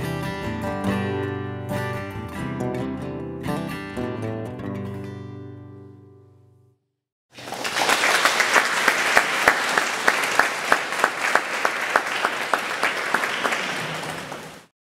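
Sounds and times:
audience applauding: 0:07.3 - 0:14.7
nearby person clapping: 0:07.4 - 0:14.7.

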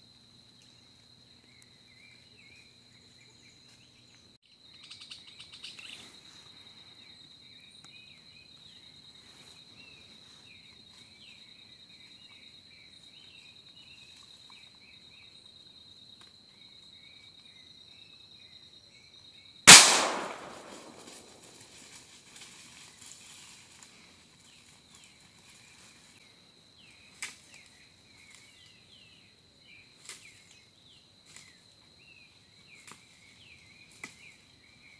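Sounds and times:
loud gunshot with echo: 0:19.7 - 0:21.4.

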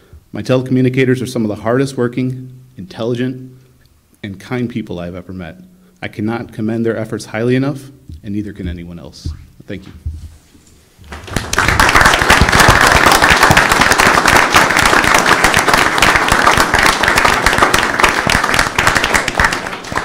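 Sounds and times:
crowd applauding: 0:11.1 - 0:20.0.

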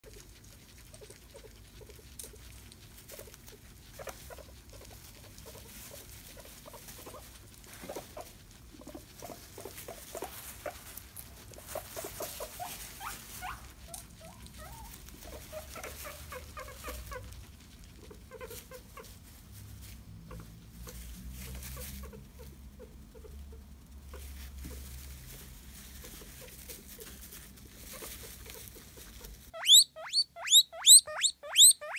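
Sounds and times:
guinea pig chewing: 0:00.0 - 0:31.9
quick squeaky sounds: 0:29.3 - 0:31.9.

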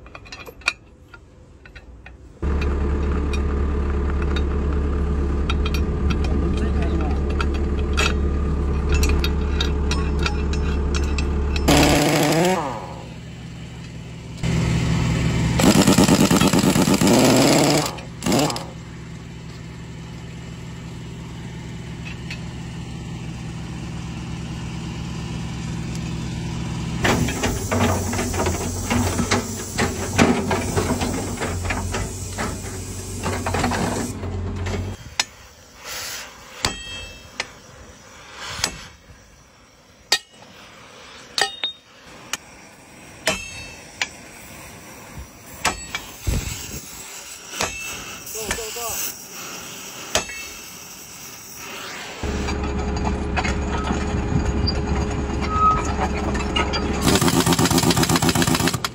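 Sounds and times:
metal clanks: 0:00.0 - 0:03.5, 0:05.3 - 0:13.0, 0:36.6 - 0:37.6, 0:41.3 - 0:41.9, 0:43.2 - 0:44.2
rattling bursts: 0:01.6 - 0:14.0, 0:15.6 - 0:18.9, 0:52.2 - 0:58.9
motor running: 0:02.4 - 0:13.6, 0:14.4 - 0:19.6, 0:57.0 - 0:58.9
mechanical hammering: 0:08.8 - 0:12.9, 0:43.2 - 0:44.2.

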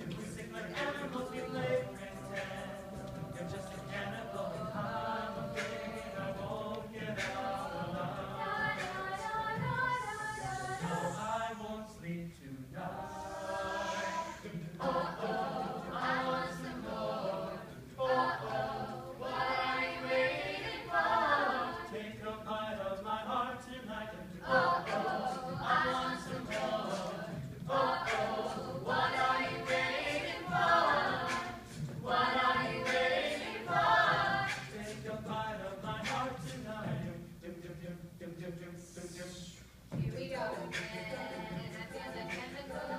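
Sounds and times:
group singing in harmony: 0:00.0 - 0:42.9
beatboxing clicks and hits: 0:05.5 - 0:07.6, 0:34.4 - 0:36.6.

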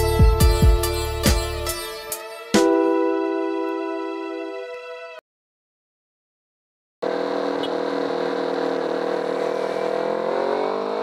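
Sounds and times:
motorcycle engine running: 0:07.0 - 0:11.0.

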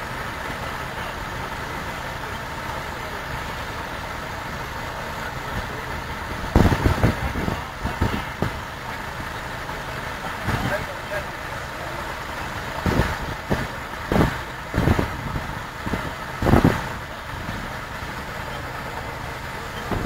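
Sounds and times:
threshing machine whirring: 0:00.0 - 0:20.0.

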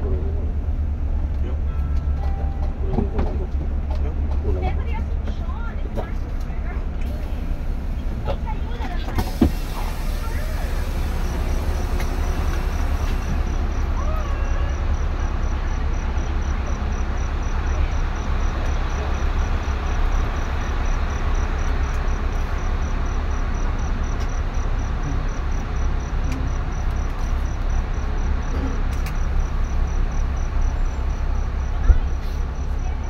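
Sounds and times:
vehicle rumble: 0:00.0 - 0:33.0
cricket chirping: 0:09.2 - 0:33.0.

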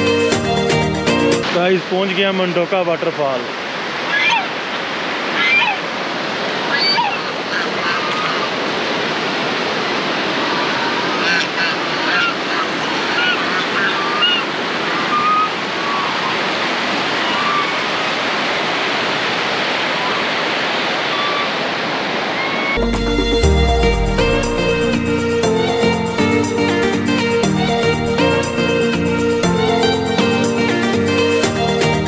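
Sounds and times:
waterfall rushing: 0:00.0 - 0:32.0
short high-pitched sounds: 0:22.8 - 0:26.8
guitar music: 0:22.8 - 0:32.0.

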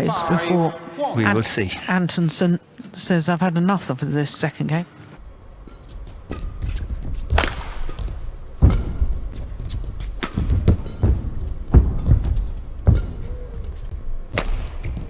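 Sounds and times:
racket striking shuttlecock: 0:05.6 - 0:13.5, 0:14.3 - 0:15.0
footsteps thudding on court: 0:06.3 - 0:15.0.

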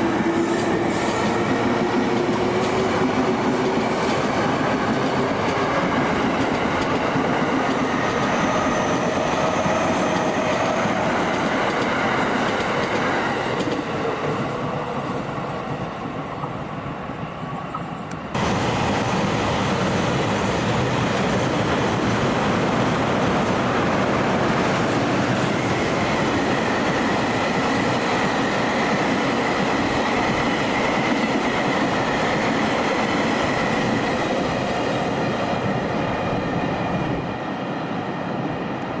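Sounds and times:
train wheels rumbling on rails: 0:00.0 - 0:39.0
clickety-clack over rail joints: 0:00.5 - 0:18.5.

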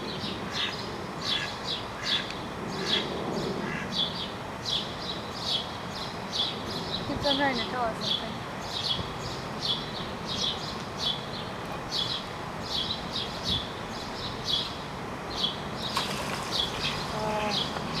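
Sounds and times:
water splashing: 0:15.7 - 0:18.0.

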